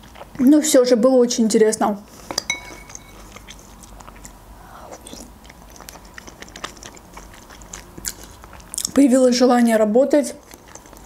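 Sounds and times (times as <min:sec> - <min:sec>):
wet chewing: 0:00.0 - 0:00.8, 0:02.1 - 0:11.0
spoon clinking on ceramic bowl: 0:02.3 - 0:03.2.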